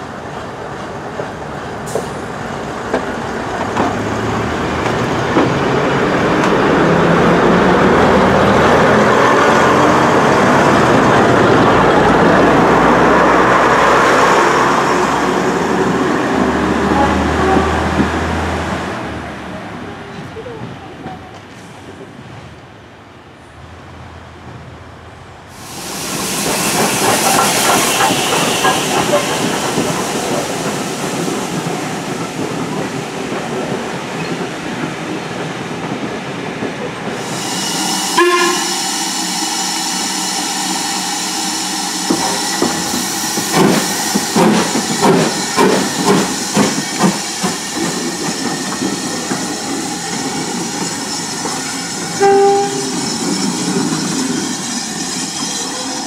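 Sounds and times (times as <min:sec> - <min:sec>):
steam locomotive running past: 0:00.0 - 0:22.2, 0:25.5 - 0:56.0
hissing steam: 0:25.5 - 0:34.4, 0:37.0 - 0:56.0
steam exhaust beats: 0:25.6 - 0:33.5
steam whistle notes: 0:37.4 - 0:42.9, 0:52.2 - 0:53.1.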